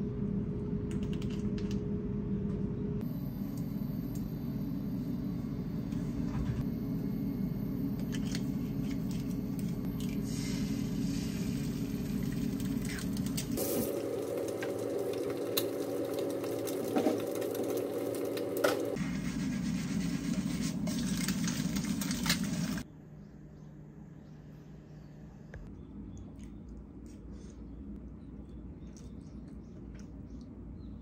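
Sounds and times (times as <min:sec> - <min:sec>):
induction hob hum: 0:00.0 - 0:26.3
egg frying hiss: 0:10.2 - 0:19.0.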